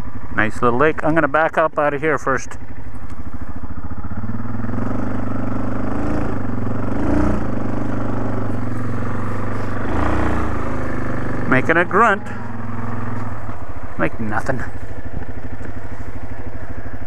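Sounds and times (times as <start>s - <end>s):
atv engine running: 0.0s - 17.0s.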